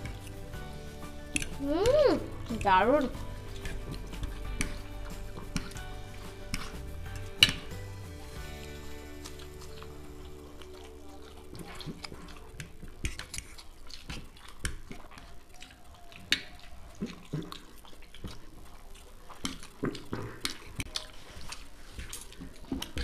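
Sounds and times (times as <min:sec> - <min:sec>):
wet chewing and slurping: 0:00.0 - 0:23.0.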